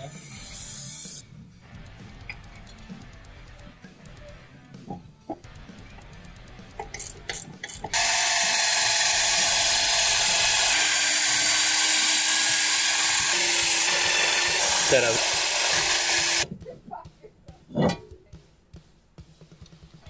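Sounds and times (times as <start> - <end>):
drill wire brush scrubbing rust: 7.9 - 16.5.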